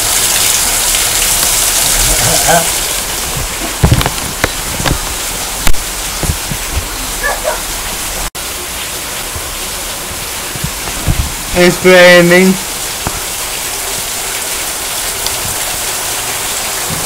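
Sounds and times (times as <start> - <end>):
sharp rain taps: 0.0 - 17.0
steady rain falling: 0.0 - 17.0.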